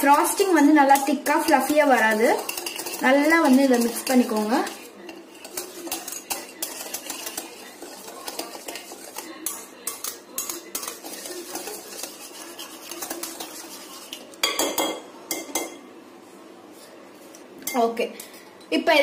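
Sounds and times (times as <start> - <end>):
whisk scraping a glass bowl: 0.0 - 14.6.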